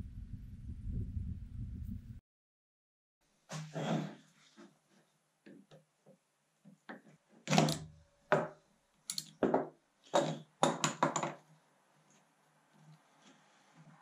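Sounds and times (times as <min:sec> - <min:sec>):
metal tools knocking on workbench: 0:07.7 - 0:11.4.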